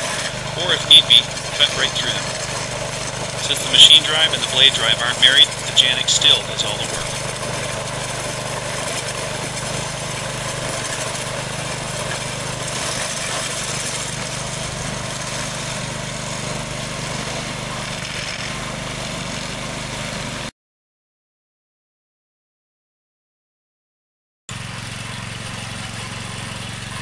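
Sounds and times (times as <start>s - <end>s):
blade cutting through gravel: 0.0s - 16.0s, 16.7s - 18.8s
small engine running: 0.0s - 20.5s, 24.5s - 27.0s.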